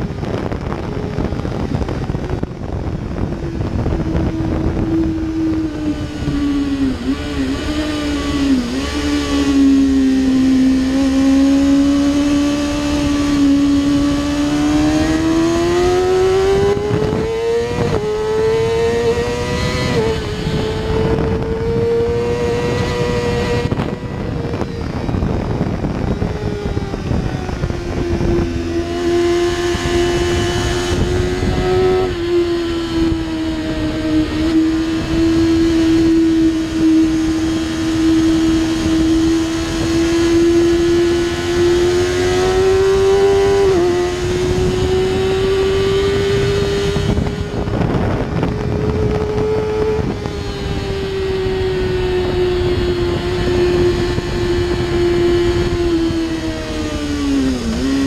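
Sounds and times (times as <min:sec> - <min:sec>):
motorcycle engine revving: 0:00.0 - 0:58.0
wind noise: 0:00.0 - 0:58.0.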